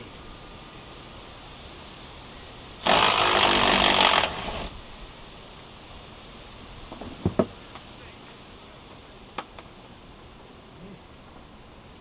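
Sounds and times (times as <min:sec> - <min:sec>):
handheld power tool running: 0:02.8 - 0:04.7
sharp knocks: 0:06.9 - 0:07.6.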